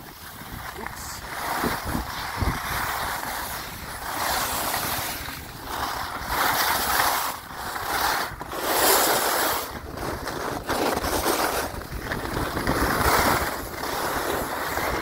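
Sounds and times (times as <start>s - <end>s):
skis scraping over snow: 0.0s - 15.0s
wind noise on microphone: 0.0s - 15.0s.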